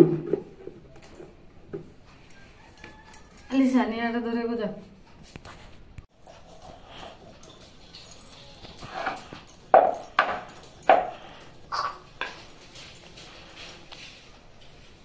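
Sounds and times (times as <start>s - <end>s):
metal kitchenware clinking: 6.6s - 13.1s.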